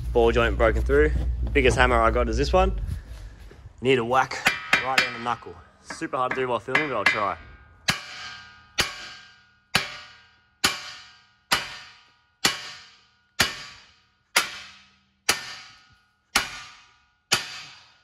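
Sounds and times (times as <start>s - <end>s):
hammer striking metal: 4.3s - 18.0s.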